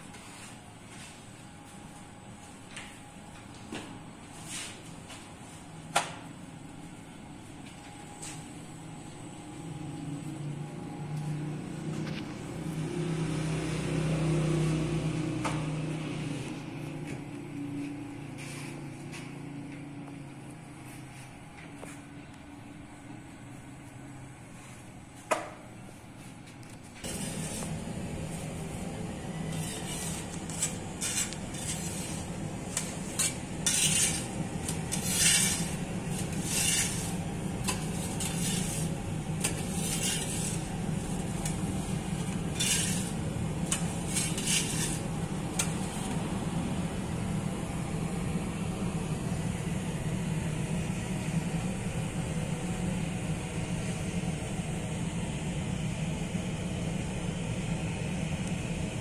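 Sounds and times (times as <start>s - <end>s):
bread oven hum: 0.0s - 59.0s
clattering noises: 29.5s - 46.2s.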